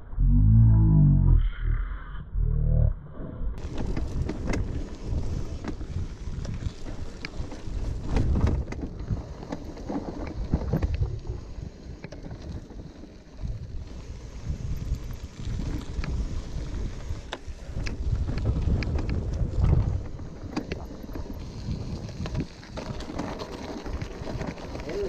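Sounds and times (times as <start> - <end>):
wind buffeting microphone: 3.6 - 23.2
bike clicks and rattles: 3.6 - 25.0
bike tyres rumbling over dirt: 3.6 - 25.0.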